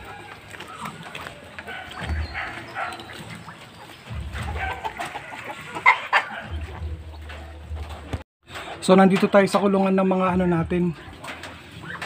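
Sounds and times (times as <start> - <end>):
loud chicken calls: 0.0 - 6.7
chickens clucking: 0.0 - 12.0.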